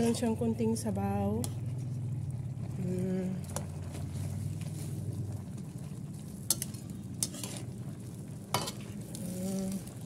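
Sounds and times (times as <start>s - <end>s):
low sizzle: 0.0s - 10.0s
spatula stirring in pan: 3.4s - 5.3s, 6.2s - 10.0s.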